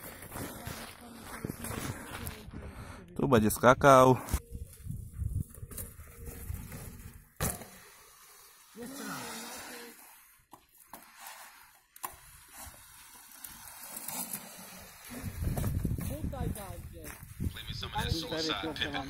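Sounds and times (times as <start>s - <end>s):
sharp knocks of bike: 7.4s - 7.8s.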